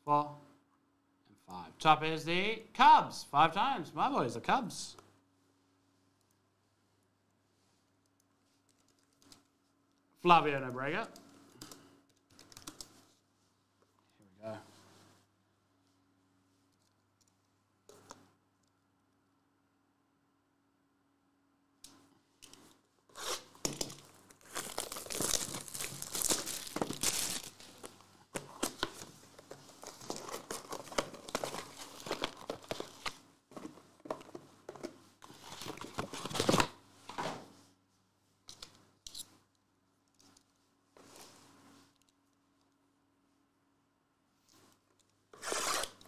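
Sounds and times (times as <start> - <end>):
plastic shrink wrap crinkling: 23.2 - 33.2.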